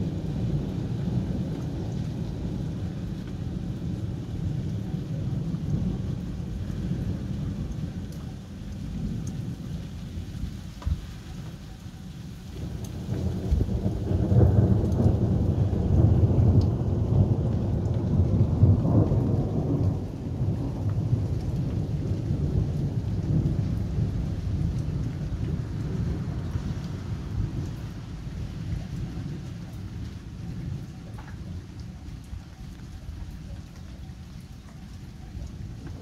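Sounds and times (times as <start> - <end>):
steady rain: 0.0 - 36.0
thunder rumbling: 12.6 - 32.4, 35.3 - 36.0.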